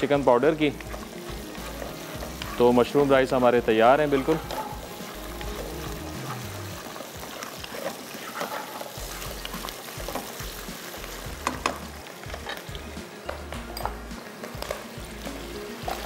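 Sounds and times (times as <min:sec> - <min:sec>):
mushrooms sizzling in oil: 0:00.0 - 0:16.0
spatula scraping and tapping pan: 0:00.7 - 0:10.4.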